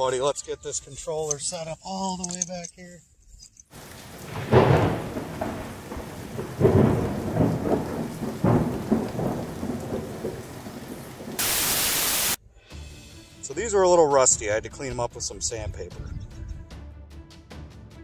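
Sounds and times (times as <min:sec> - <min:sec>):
steady rain: 0:03.7 - 0:12.4
rolling thunderclaps: 0:03.8 - 0:12.4
static hiss: 0:11.2 - 0:12.4.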